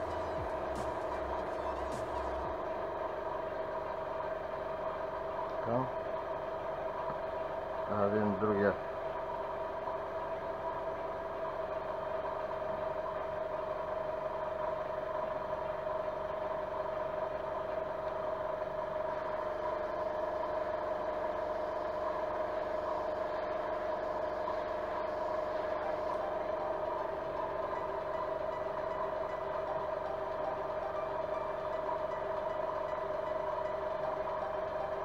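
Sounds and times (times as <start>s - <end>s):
airbrush compressor humming: 0.0s - 2.6s.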